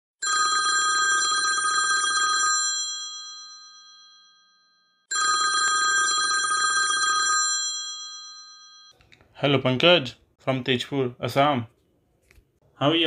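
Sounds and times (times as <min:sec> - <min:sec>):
telephone ringing: 0:00.2 - 0:09.0.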